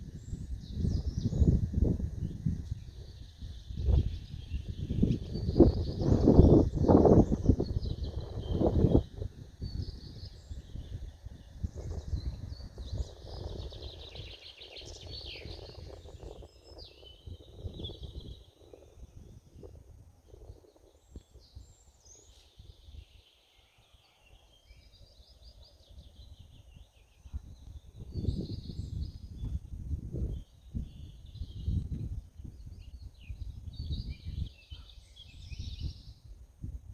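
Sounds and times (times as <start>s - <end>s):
songbirds singing and chirping: 0.0s - 36.9s.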